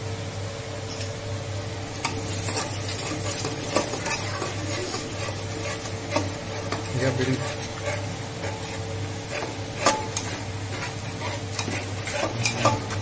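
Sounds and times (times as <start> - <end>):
light sizzle: 0.0 - 13.0
steady low hum: 0.0 - 13.0
spatula clicking on pot wall: 2.0 - 13.0
spatula scraping a pot: 2.0 - 13.0.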